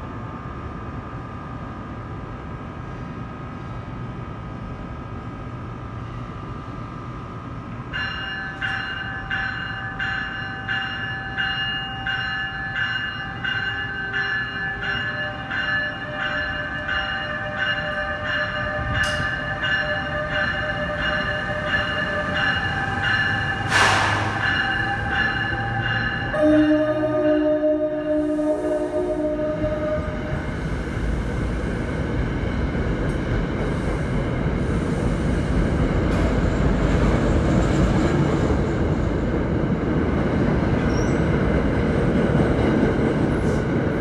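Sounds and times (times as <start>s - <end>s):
locomotive hum and train rolling: 0.0s - 44.0s
locomotive bell ringing: 7.9s - 30.5s
air hiss: 23.6s - 24.4s.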